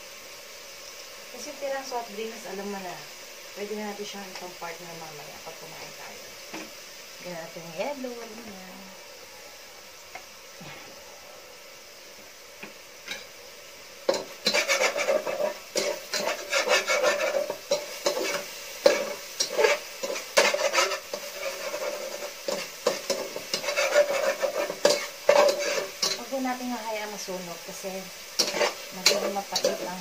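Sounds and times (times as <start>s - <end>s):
frying sizzle: 0.0s - 30.0s
spatula scraping metal pot: 14.1s - 26.3s, 28.4s - 30.0s.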